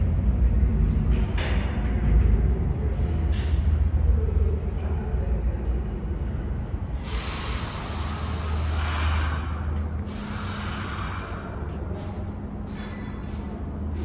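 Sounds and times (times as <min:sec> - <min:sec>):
air brakes hissing: 0:07.0 - 0:14.0.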